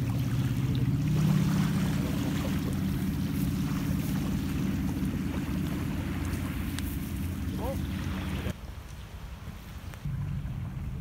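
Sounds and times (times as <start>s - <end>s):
engine running pulsing hum: 0.0s - 8.6s, 10.1s - 11.0s.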